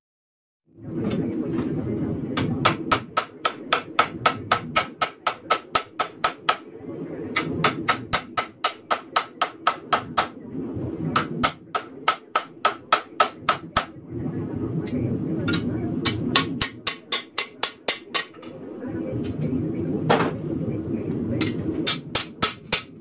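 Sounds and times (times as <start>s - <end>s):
hammer striking metal on anvil: 15.5s - 18.4s.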